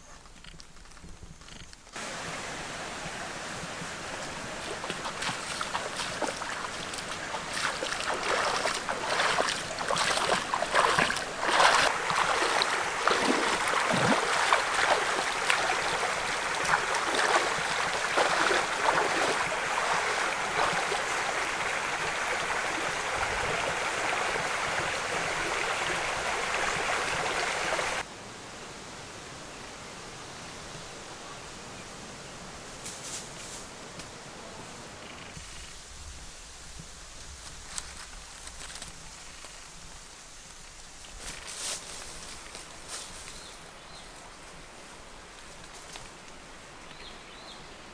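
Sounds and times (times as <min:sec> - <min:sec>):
water rushing: 0:02.0 - 0:28.1
feet wading through water: 0:03.6 - 0:28.0.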